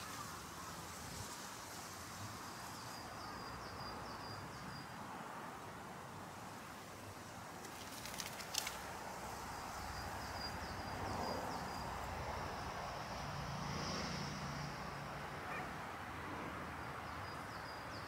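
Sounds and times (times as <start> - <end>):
faint steady hiss: 0.0 - 18.0
crackling clicks: 7.6 - 9.0
small birds chirping: 7.6 - 12.8, 16.7 - 18.0.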